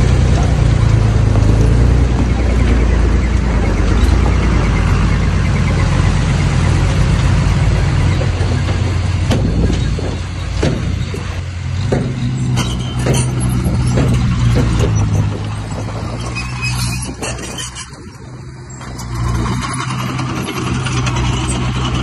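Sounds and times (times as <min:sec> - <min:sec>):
heavy diesel machinery drone: 0:00.0 - 0:22.0
sharp knocks and clanks: 0:06.6 - 0:18.1.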